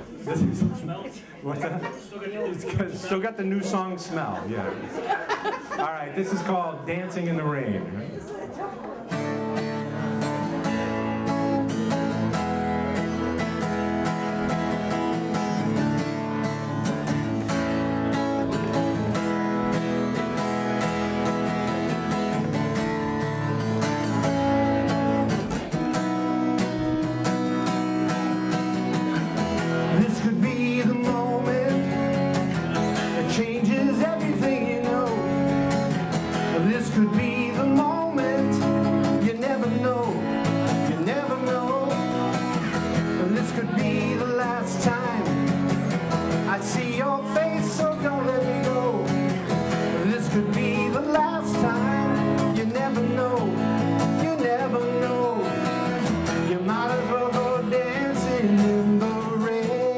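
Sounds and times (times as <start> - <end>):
strummed acoustic guitar: 9.0 - 59.9
man singing: 9.4 - 59.9.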